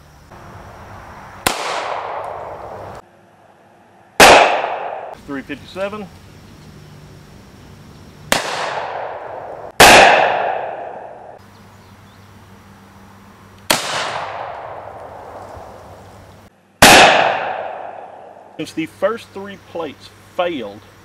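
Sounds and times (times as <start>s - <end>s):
gunshots with echo: 1.4s - 2.6s, 4.2s - 5.2s, 8.3s - 11.4s, 16.8s - 18.4s.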